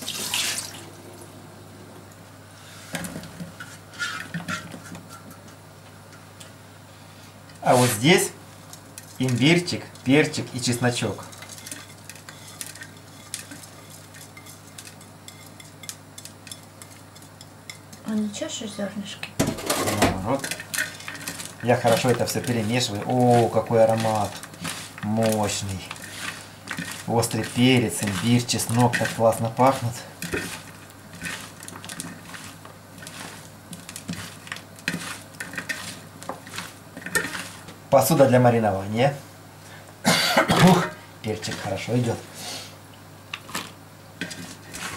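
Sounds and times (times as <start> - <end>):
low hum: 0.7 - 2.7
vegetables scraped onto metal tray: 19.5 - 38.2, 41.3 - 42.3, 43.4 - 44.9.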